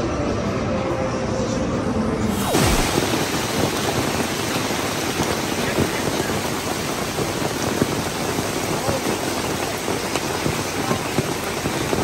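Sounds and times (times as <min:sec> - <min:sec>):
hail pelting a canopy roof: 0:02.5 - 0:12.0.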